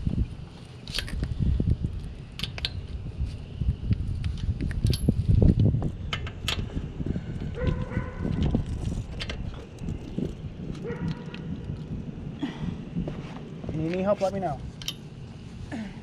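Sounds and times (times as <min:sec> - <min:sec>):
metal clinks of lug wrench: 0:04.7 - 0:05.3, 0:14.8 - 0:15.1.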